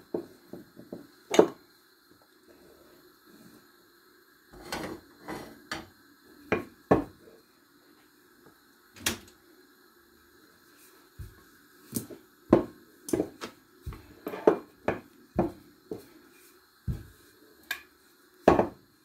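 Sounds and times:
rolling pin knocking on worktop: 12.5 - 13.4, 18.5 - 18.8.

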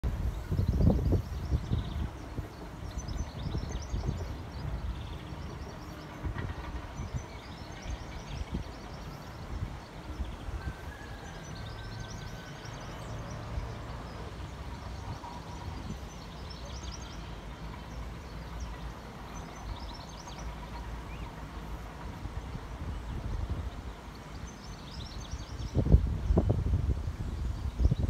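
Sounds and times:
wind on microphone: 0.0 - 11.0, 25.0 - 28.0
distant diesel locomotive rumble: 0.0 - 28.0.

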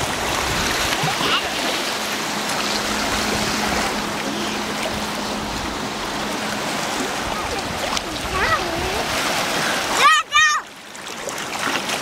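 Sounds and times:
water lapping on pebbly shore: 0.0 - 12.0.

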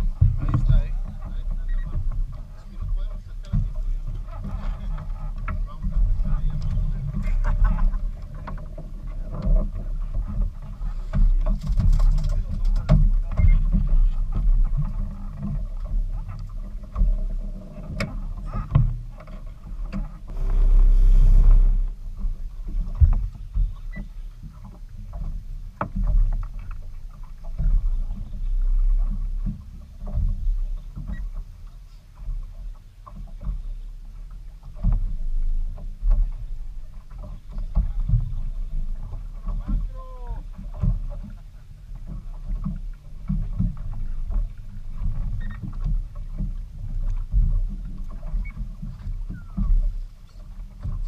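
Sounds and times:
low uneven boat rumble: 0.0 - 51.0
rushing swell of noise: 20.3 - 22.0.

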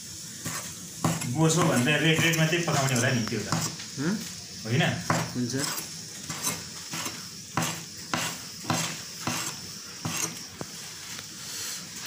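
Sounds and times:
knife chopping on plastic board: 0.5 - 2.4, 3.5 - 3.8, 5.0 - 5.4, 6.3 - 10.3.

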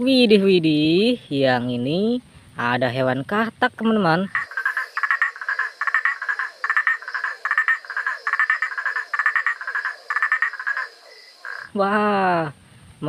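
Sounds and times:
tree frog croaking: 3.1 - 11.8.

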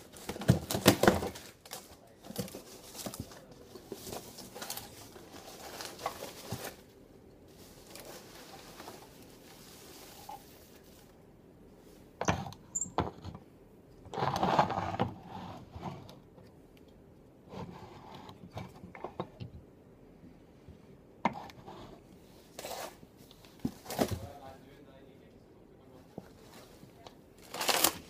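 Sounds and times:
packaging rustling: 0.0 - 11.1, 27.4 - 28.0.

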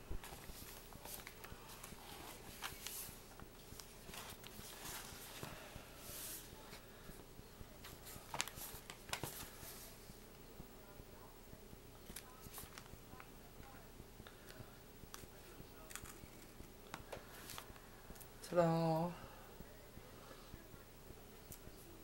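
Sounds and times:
paper pages rustling: 0.2 - 6.8, 7.8 - 10.0, 12.0 - 12.9.

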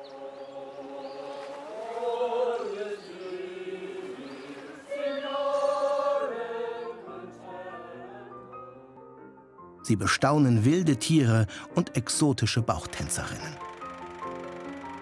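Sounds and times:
choir singing in harmony: 0.0 - 9.2.

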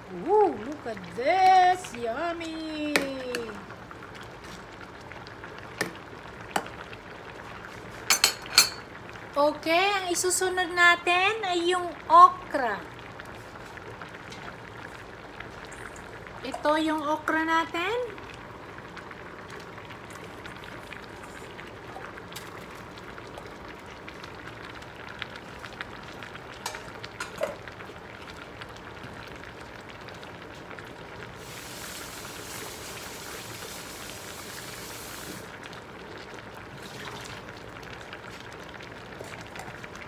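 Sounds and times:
broth boiling bubbling hiss: 0.0 - 40.0.

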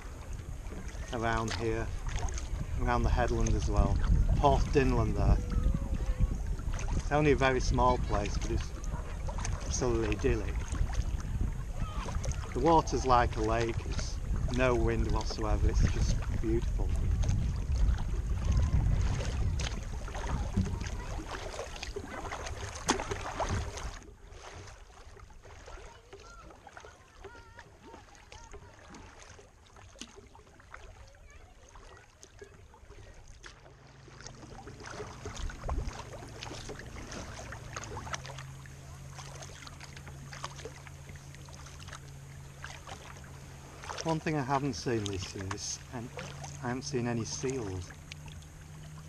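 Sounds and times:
kayak paddle in water: 0.0 - 49.0.

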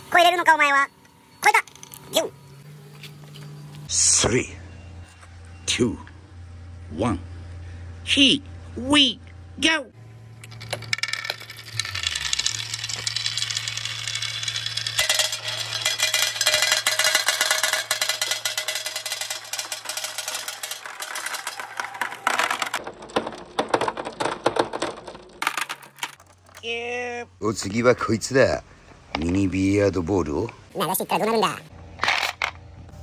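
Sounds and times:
glass marbles clattering on track: 10.4 - 26.9.

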